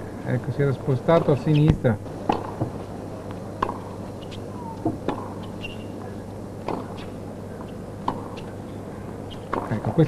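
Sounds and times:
low venue background noise: 0:00.0 - 0:10.0
ball bouncing on hard court: 0:01.2 - 0:02.8, 0:03.6 - 0:05.8, 0:09.5 - 0:09.8
racket striking tennis ball: 0:02.3 - 0:02.8, 0:03.6 - 0:05.8, 0:06.6 - 0:07.1.

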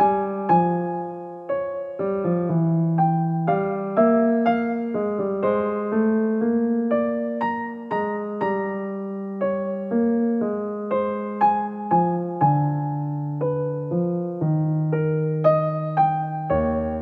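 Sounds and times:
soft piano music: 0:00.0 - 0:17.0.

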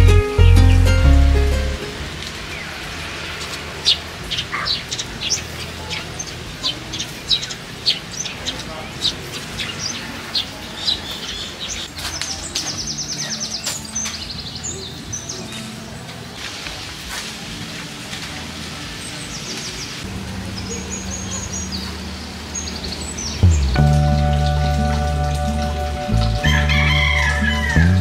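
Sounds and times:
small birds chirping and trilling: 0:03.8 - 0:15.8, 0:19.0 - 0:27.9
low steady hum: 0:23.4 - 0:28.0
rooster crowing: 0:26.4 - 0:28.0.

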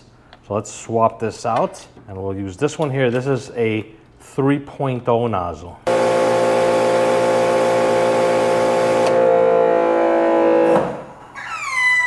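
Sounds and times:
high whine falling in pitch: 0:05.9 - 0:11.0
pressure washer humming: 0:05.9 - 0:11.0.

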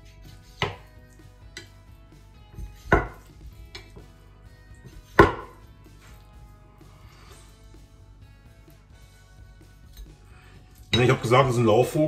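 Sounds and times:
knife knocking on wooden board: 0:02.8 - 0:04.0, 0:05.2 - 0:05.6.

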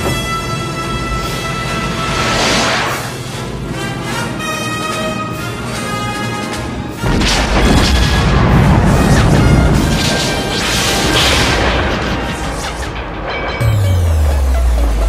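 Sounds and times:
orchestral film music: 0:00.0 - 0:15.0.

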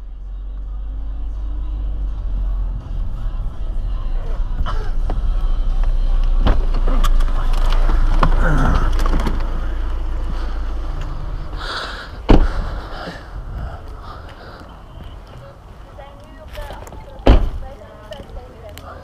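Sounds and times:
car engine and tyres rumbling: 0:00.0 - 0:19.0
shuffling and rattling: 0:05.8 - 0:18.3
car door slamming: 0:06.3 - 0:09.6, 0:12.1 - 0:12.8, 0:17.2 - 0:17.7.

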